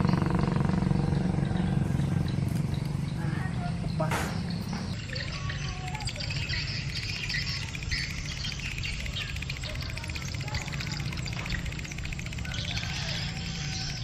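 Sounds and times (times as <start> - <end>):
steady low rumble: 0.0 - 9.6
birds chirping: 0.0 - 14.0
insects trilling: 0.0 - 14.0.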